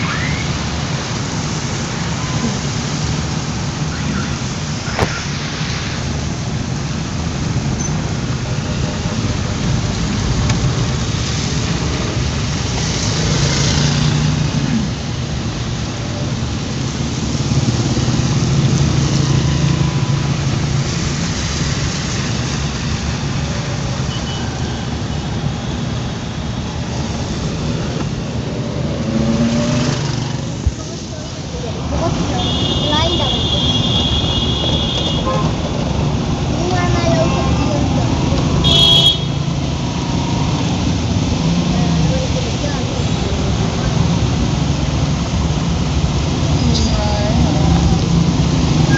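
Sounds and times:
rain: 0.0 - 48.9
tyres on wet road: 0.0 - 48.9.

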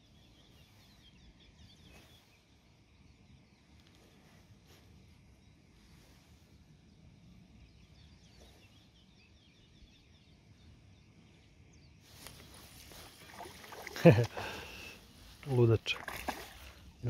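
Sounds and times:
faint bird chirps: 0.0 - 17.0
rushing water splashing: 13.0 - 14.7, 15.5 - 16.8.

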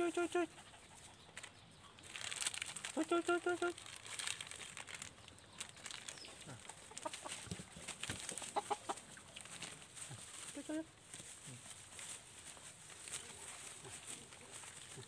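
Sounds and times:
hen clucking: 0.0 - 2.0, 5.4 - 9.5.

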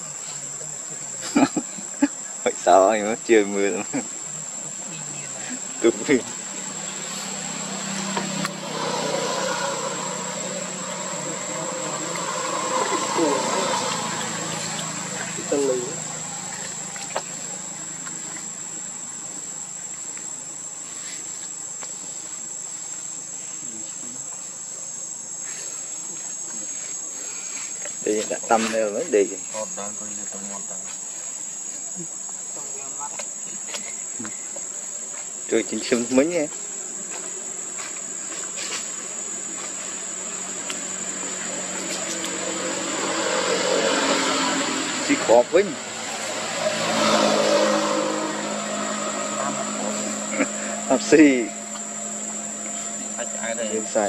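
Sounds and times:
high-pitched insect drone: 0.0 - 54.0
motor running: 5.9 - 20.2, 49.3 - 54.0.

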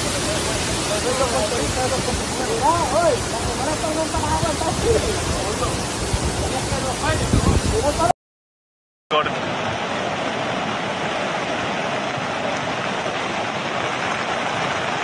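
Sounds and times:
river rushing: 0.0 - 8.1, 9.1 - 15.0.

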